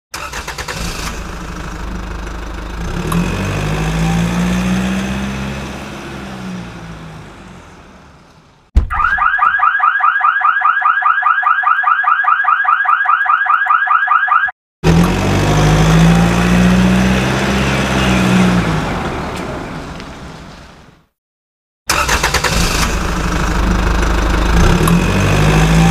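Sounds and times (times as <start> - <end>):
vehicle engine hum: 0.3 - 8.7, 14.8 - 21.1, 22.4 - 25.9
electronic alarm warble: 8.9 - 14.5.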